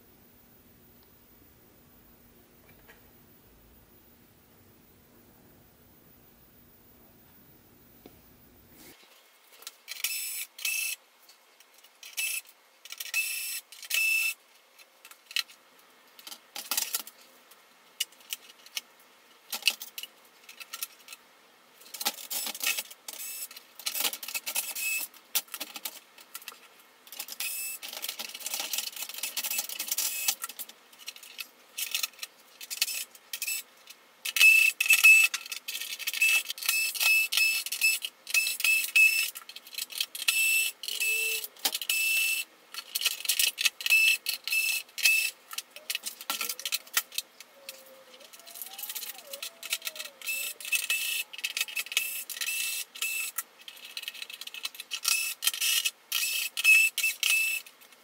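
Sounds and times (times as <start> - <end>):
screws and metal parts rattling: 34.3 - 57.6.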